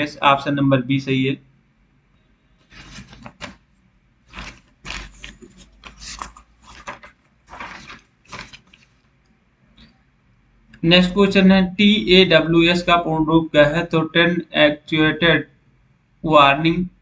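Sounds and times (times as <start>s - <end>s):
paper rustling: 2.6s - 9.1s.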